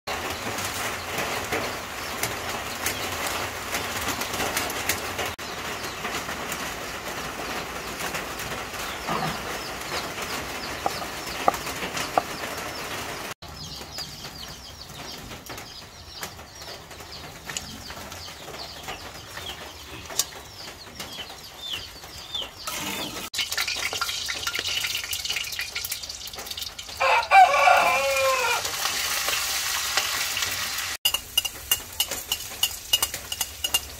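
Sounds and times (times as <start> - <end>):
chickens calling: 0.1 - 23.8, 26.3 - 31.0
rooster crowing: 27.0 - 28.7.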